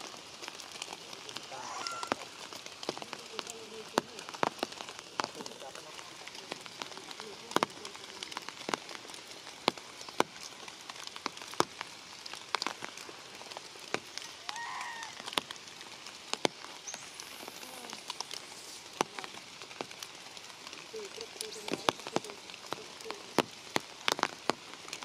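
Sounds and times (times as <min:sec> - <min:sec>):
raindrops ticking close by: 0:00.0 - 0:25.0
steady rain falling: 0:00.0 - 0:25.0
short pitched call: 0:01.5 - 0:02.4.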